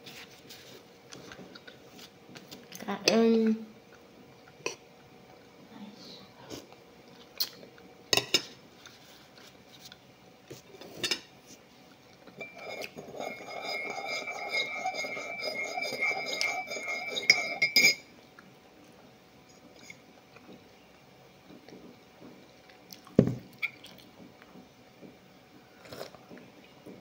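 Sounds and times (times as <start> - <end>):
spoon stirring in metal mug: 12.3 - 18.1
spoon clinking against bowl: 12.4 - 18.0.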